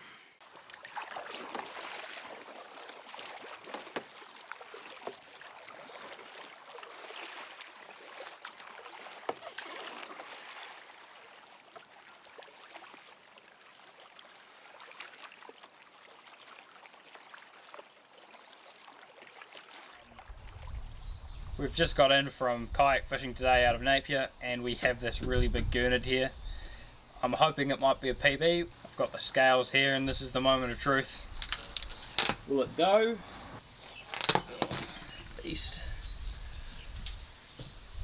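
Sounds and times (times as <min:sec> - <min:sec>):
water sloshing against kayak hull: 0:00.4 - 0:21.6.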